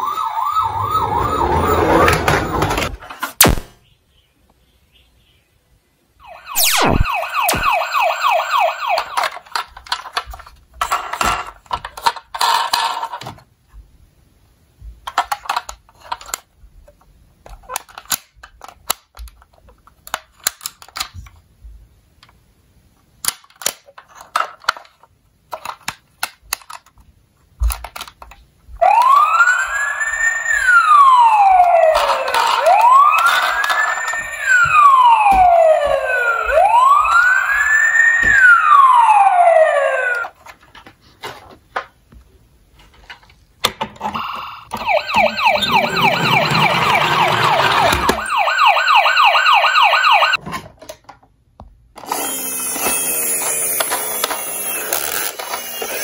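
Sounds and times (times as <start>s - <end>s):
toy siren wailing: 0.0s - 2.8s, 6.2s - 9.4s, 28.8s - 40.3s, 44.7s - 50.4s
fast-pulsing siren tone: 0.0s - 2.9s, 6.2s - 9.3s, 28.8s - 40.2s, 44.7s - 50.4s
plastic toy parts clicking: 9.0s - 13.2s, 15.0s - 16.5s, 17.4s - 21.4s, 23.2s - 28.4s.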